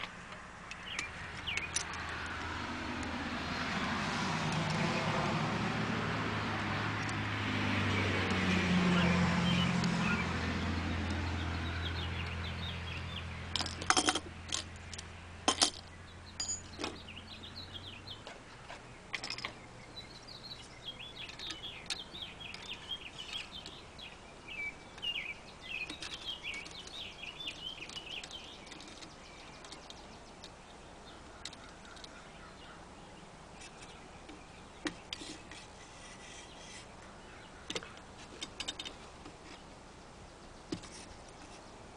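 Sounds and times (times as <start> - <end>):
vehicle engine passing: 0.0 - 29.2
birds chirping: 0.0 - 41.9.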